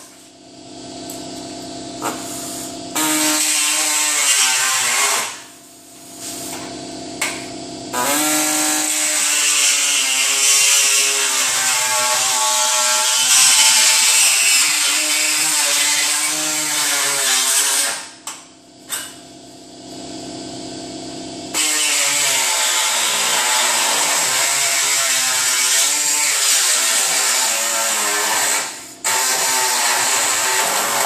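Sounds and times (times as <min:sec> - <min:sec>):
steady hum: 0:00.0 - 0:08.9, 0:18.0 - 0:26.0
power tool cutting sheet metal: 0:02.0 - 0:05.6, 0:06.2 - 0:18.2, 0:21.5 - 0:31.0.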